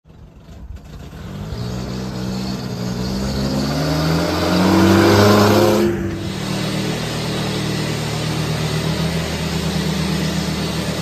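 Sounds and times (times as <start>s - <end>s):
truck engine accelerating: 0.1s - 11.0s.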